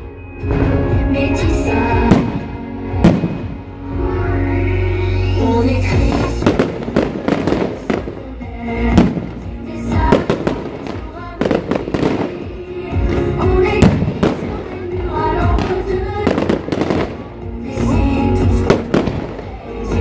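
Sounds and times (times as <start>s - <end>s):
loud music: 0.0s - 20.0s.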